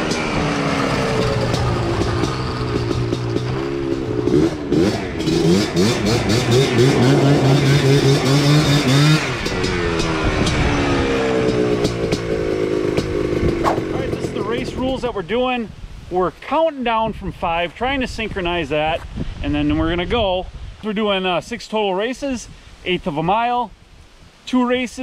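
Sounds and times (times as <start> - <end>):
two-stroke engine revving: 0.0 - 15.1.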